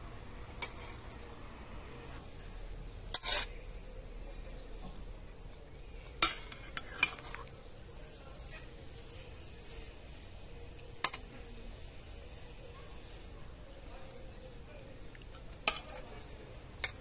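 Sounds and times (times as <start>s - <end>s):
cutlery clinking on metal tray: 3.1s - 3.6s, 6.1s - 7.5s, 15.6s - 16.0s.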